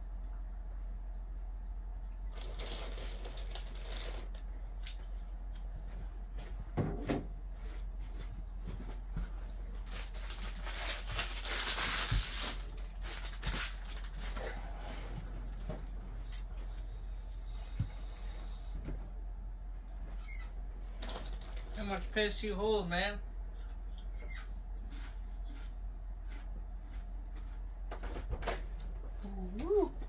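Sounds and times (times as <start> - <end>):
foil wrappers crinkling: 2.3 - 4.5, 9.8 - 14.6, 21.0 - 22.1.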